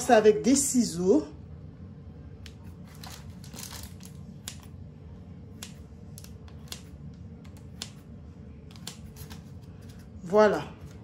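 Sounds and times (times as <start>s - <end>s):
low steady hum: 0.0s - 11.0s
scissors snipping dough: 5.5s - 9.5s.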